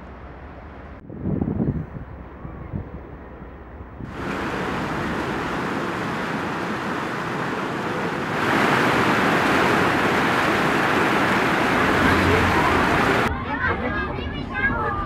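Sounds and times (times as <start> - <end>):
wind on microphone: 1.0 - 3.2, 4.0 - 13.3
water splashing in fountain: 4.1 - 13.3.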